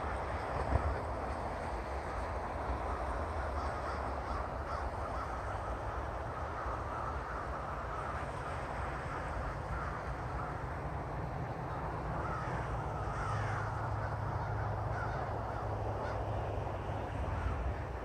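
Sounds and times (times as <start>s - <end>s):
low steady rumble: 0.0s - 18.0s
crows cawing: 3.4s - 10.8s, 12.1s - 16.4s, 17.0s - 18.0s.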